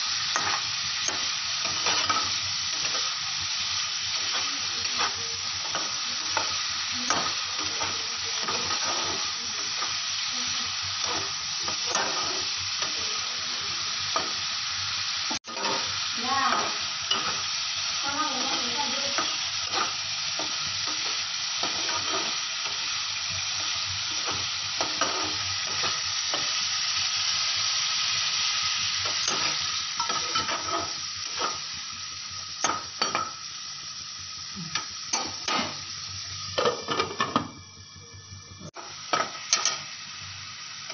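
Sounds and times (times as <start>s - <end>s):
food sizzling in frying pan: 0.0s - 40.9s
spatula scraping pan: 18.3s - 22.8s, 24.2s - 26.5s, 29.0s - 31.6s.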